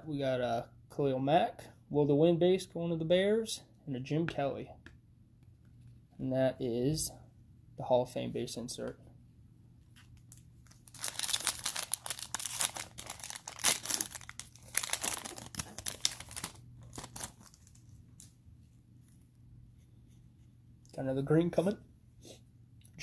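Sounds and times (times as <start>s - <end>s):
cellophane wrapper crinkling: 9.9s - 18.4s.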